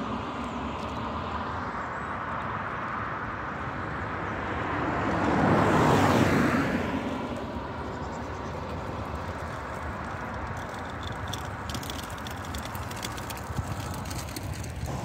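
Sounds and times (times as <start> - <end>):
car passing by: 0.0 - 15.0
traffic hum: 0.0 - 15.0.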